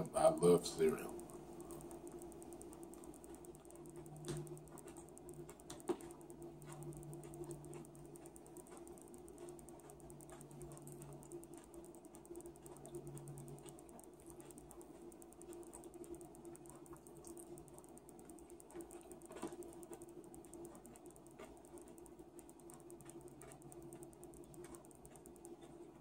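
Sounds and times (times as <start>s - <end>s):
chewing cereal: 0.0s - 26.0s.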